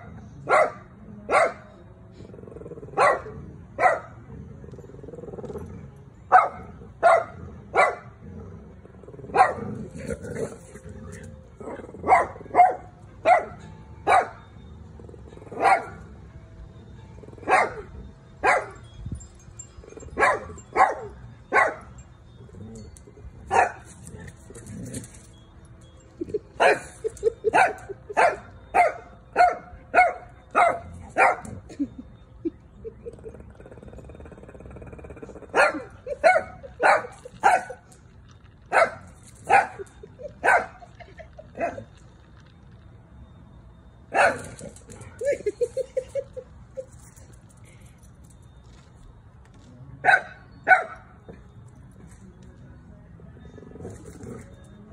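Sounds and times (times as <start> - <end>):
dog barking: 0.5 - 1.6, 3.0 - 4.1, 6.3 - 8.0, 9.4 - 9.7, 12.1 - 14.4, 27.6 - 31.5, 50.1 - 51.0.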